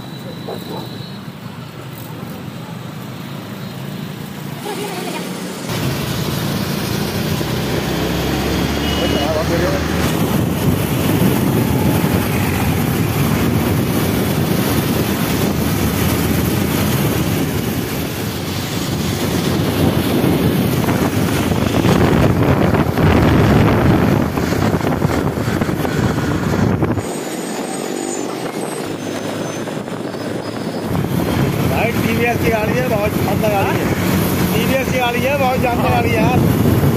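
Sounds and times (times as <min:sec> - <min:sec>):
road traffic rumble and hiss: 0:00.0 - 0:36.9.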